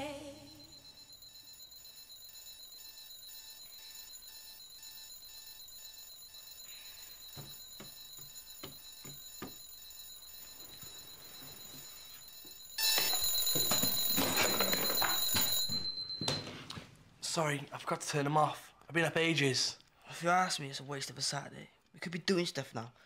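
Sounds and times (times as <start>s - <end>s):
alarm clock beeping: 0.0s - 16.6s
loud ringing alarm: 0.0s - 16.6s.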